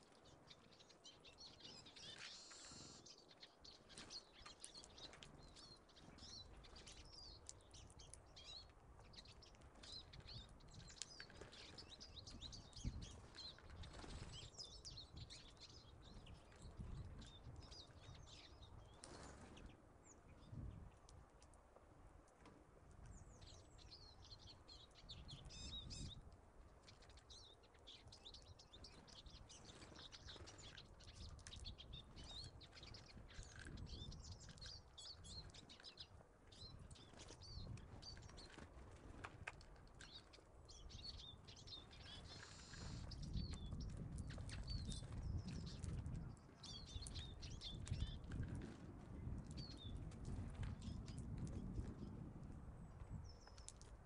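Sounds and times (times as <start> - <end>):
songbirds chirping: 0.0 - 54.0
wings fluttering: 9.5 - 14.6.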